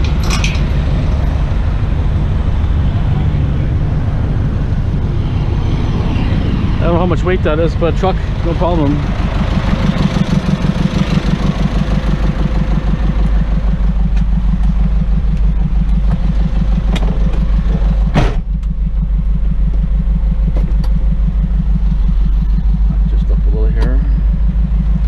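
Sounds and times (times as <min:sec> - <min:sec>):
truck engine running: 0:00.0 - 0:25.0
loud clunk: 0:18.1 - 0:18.6.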